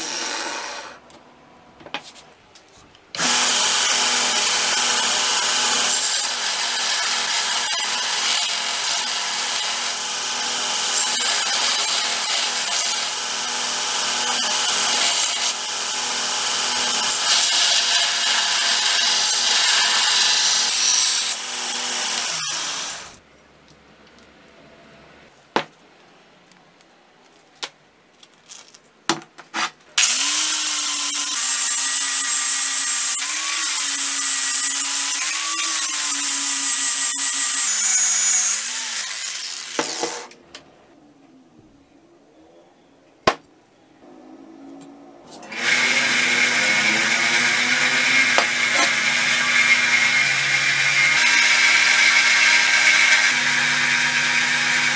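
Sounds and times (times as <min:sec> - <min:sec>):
belt grinder grinding steel: 0:03.2 - 0:23.2, 0:30.0 - 0:40.4, 0:45.3 - 0:54.9
power sanding disc on metal: 0:45.4 - 0:51.3.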